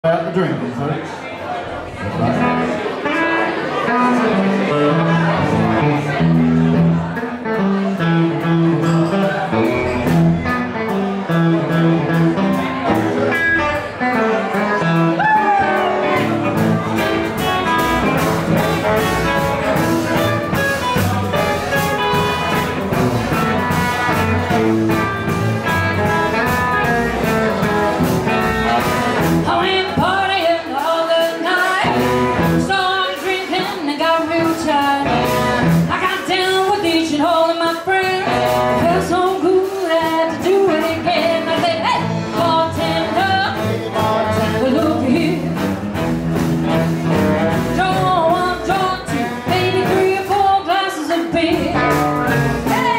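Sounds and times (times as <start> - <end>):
live rock and roll band: 1.8 - 52.9
woman singing: 29.4 - 45.6, 47.7 - 52.9.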